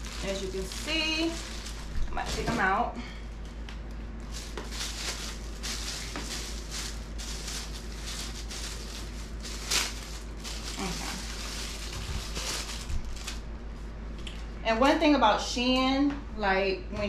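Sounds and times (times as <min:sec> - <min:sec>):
plastic packaging crinkling: 0:00.0 - 0:13.5
low steady hum: 0:00.0 - 0:17.0.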